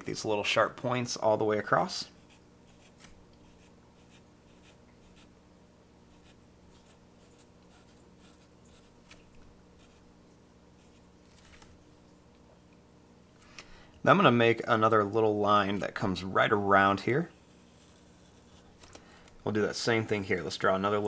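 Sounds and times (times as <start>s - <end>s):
marker scratching on card: 2.2s - 5.3s, 6.1s - 9.2s.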